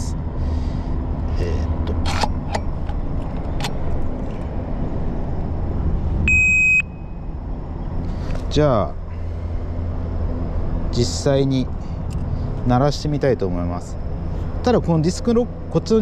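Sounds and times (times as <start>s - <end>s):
short electronic beep: 6.3s - 7.3s.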